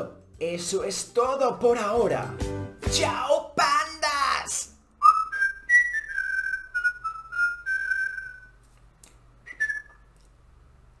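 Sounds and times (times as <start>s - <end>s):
person whistling a tune: 5.0s - 8.5s, 9.5s - 10.0s.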